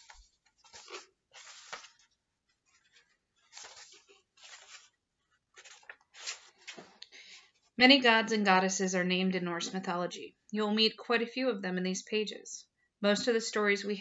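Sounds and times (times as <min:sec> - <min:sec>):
book pages rustling: 0:00.0 - 0:07.8.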